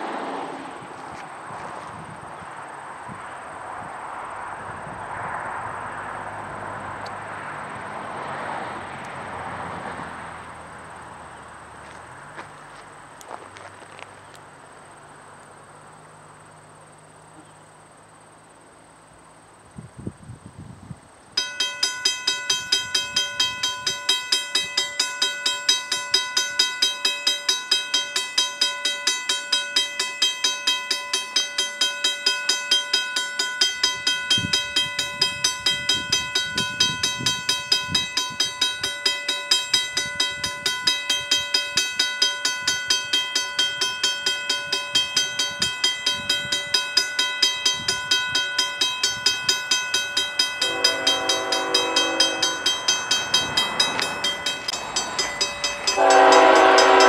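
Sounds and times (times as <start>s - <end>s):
railroad crossing bell ringing: 21.3s - 57.0s.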